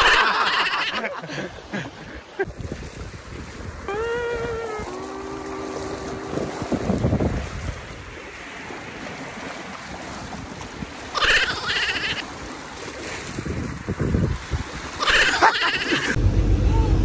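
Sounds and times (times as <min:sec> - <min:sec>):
sea waves washing: 0:00.0 - 0:17.0
wind buffeting microphone: 0:02.4 - 0:11.2, 0:12.2 - 0:15.0.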